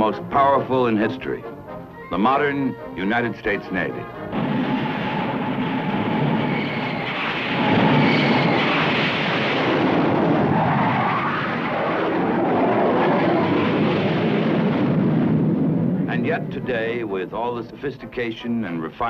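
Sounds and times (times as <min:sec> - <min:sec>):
jet engines roaring: 0:04.1 - 0:17.8.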